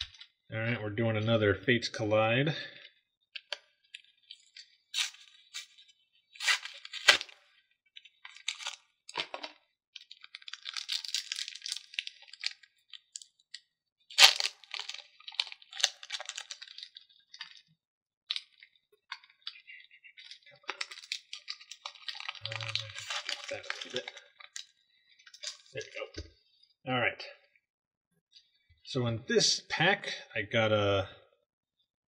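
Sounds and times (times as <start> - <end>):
foil pack tearing and crinkling: 5.0 - 5.8, 6.4 - 7.4, 8.3 - 9.5, 10.1 - 13.4, 14.1 - 17.6, 20.2 - 24.6.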